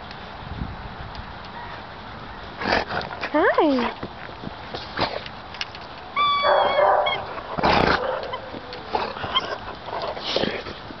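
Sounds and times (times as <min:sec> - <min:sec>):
dog harsh noisy sound: 0:06.2 - 0:09.6
dog whining: 0:06.2 - 0:09.8.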